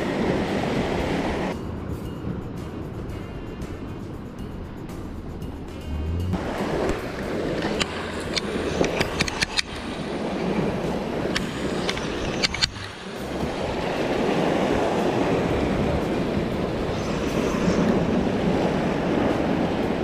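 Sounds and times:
sea washing against rocks: 0:00.0 - 0:01.6, 0:06.4 - 0:20.0
sharp clicks and knocks: 0:07.6 - 0:09.8.

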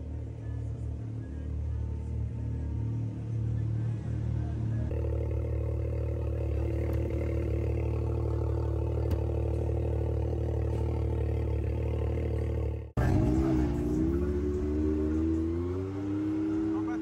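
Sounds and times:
engine idling: 0:00.0 - 0:17.0.

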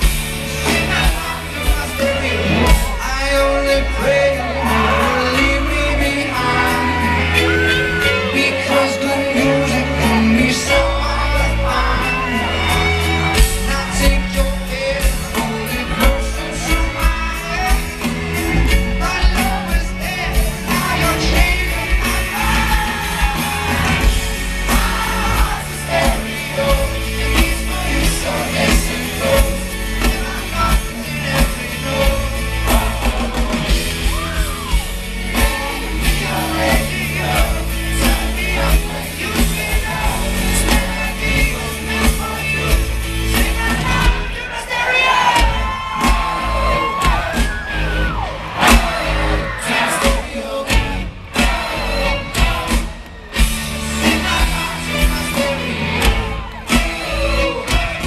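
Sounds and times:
amplified rock band: 0:00.0 - 0:58.0
man singing through pa: 0:00.5 - 0:18.1.

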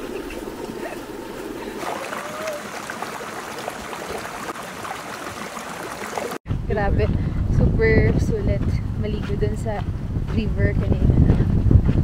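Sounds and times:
stream water splashing and rushing: 0:00.0 - 0:06.4.

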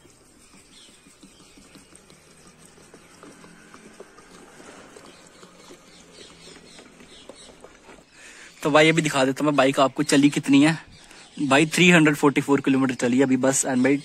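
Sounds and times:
petrol trickling into tank: 0:00.0 - 0:09.4.

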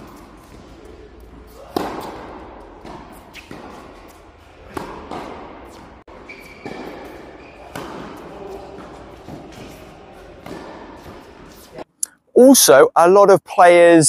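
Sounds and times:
tennis balls bouncing: 0:00.0 - 0:11.7
tennis balls hit by rackets: 0:00.0 - 0:11.8
high squeak: 0:06.2 - 0:07.6.

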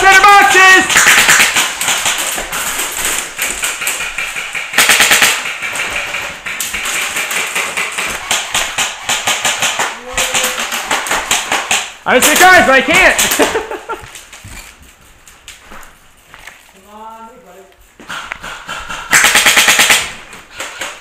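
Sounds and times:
airsoft guns firing: 0:00.0 - 0:13.9, 0:18.1 - 0:21.0.

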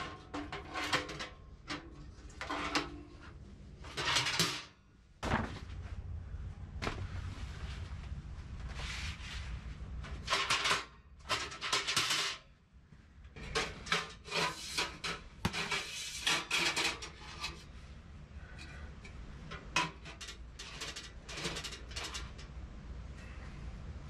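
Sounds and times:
metal stovepipe scraping and clattering: 0:00.0 - 0:04.8, 0:09.9 - 0:12.6, 0:13.3 - 0:22.6.

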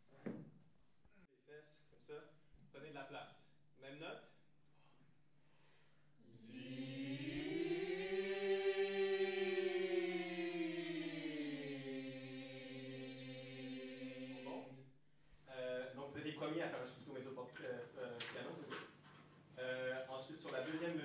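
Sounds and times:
choir singing held chord: 0:06.2 - 0:14.9.

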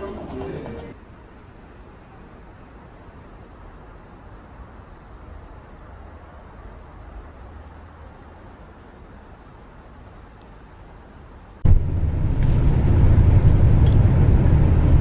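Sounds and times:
steady low rumble: 0:11.6 - 0:15.0.

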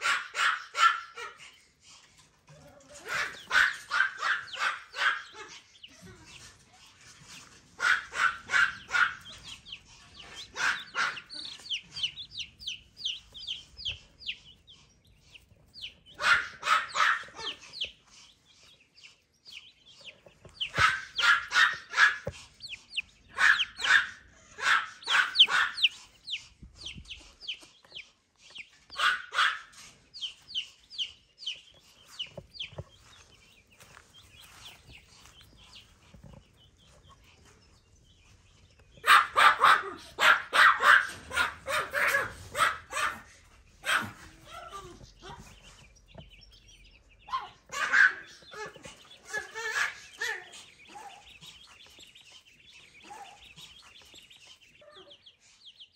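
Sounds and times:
small dog barking: 0:00.0 - 0:01.4, 0:02.6 - 0:06.1, 0:07.7 - 0:12.3, 0:16.1 - 0:17.8, 0:20.5 - 0:22.4, 0:23.2 - 0:26.0, 0:28.9 - 0:29.8, 0:39.0 - 0:45.6, 0:47.3 - 0:51.3, 0:53.0 - 0:53.6
chicks peeping: 0:00.0 - 0:55.9.

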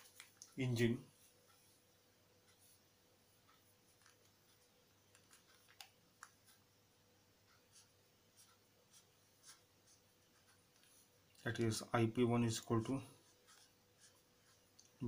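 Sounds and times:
marker writing on paper: 0:03.9 - 0:06.6, 0:07.5 - 0:11.1, 0:13.1 - 0:15.0
marker clicks and taps: 0:05.1 - 0:06.5.

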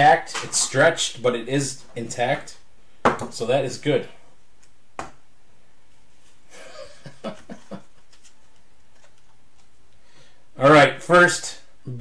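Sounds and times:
soft low chuckle: 0:06.5 - 0:08.1
faint handling of trading cards: 0:07.2 - 0:10.1.

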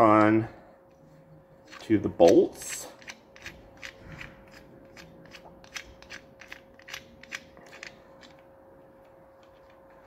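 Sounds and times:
faint steady hum: 0:00.0 - 0:10.0
nut spinning onto bolt clicks: 0:01.7 - 0:08.4.

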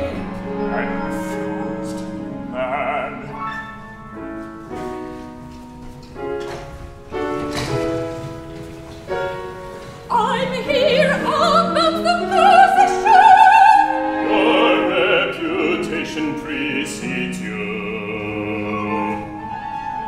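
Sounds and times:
operatic singing: 0:00.0 - 0:03.9, 0:10.1 - 0:20.0
chamber ensemble playing: 0:00.0 - 0:20.0.

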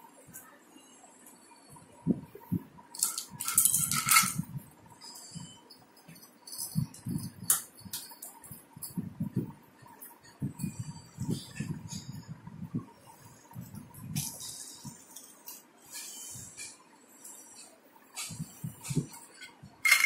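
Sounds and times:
plastic clattering: 0:03.0 - 0:04.5, 0:19.0 - 0:20.0
plastic toy clicks and knocks: 0:03.0 - 0:04.5, 0:06.2 - 0:08.5, 0:19.3 - 0:20.0.

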